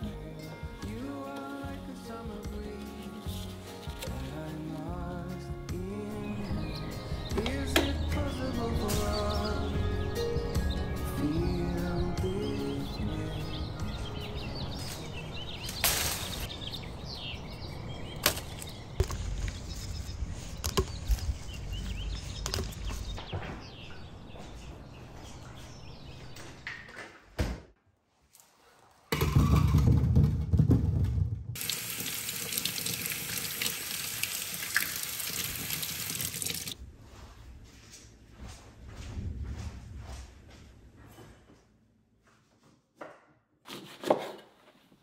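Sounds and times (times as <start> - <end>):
leaves rustling: 14.8 - 16.9, 18.0 - 23.1
tap water running into sink: 31.6 - 36.8.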